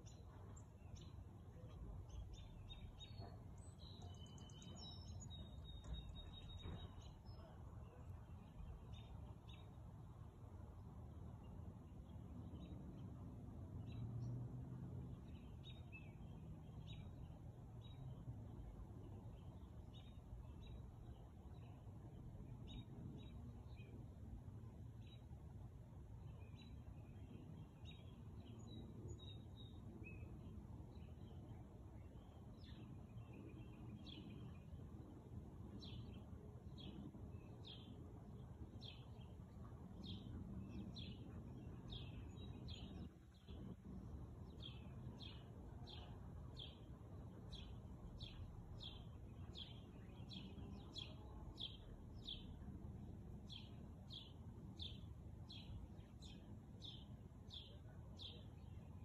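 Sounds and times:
faint low outdoor rumble: 0:00.0 - 0:59.0.

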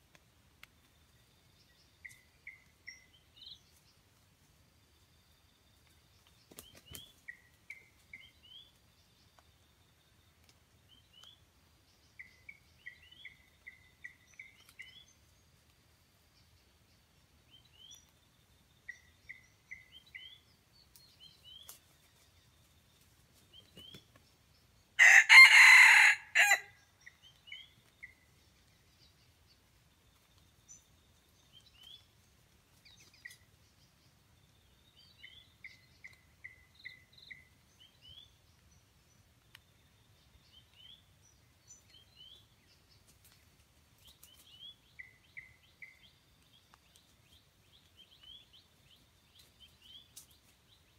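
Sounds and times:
rooster crowing: 0:25.0 - 0:26.8.

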